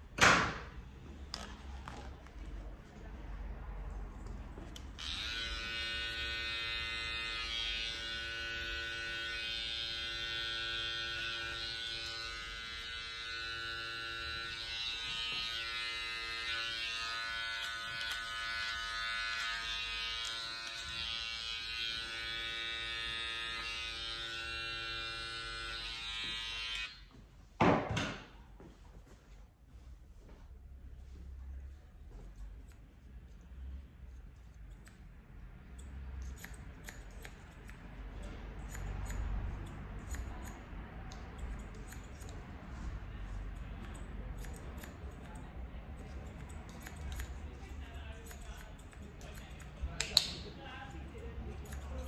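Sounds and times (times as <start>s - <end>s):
electric hair clipper buzzing: 5.0s - 27.0s.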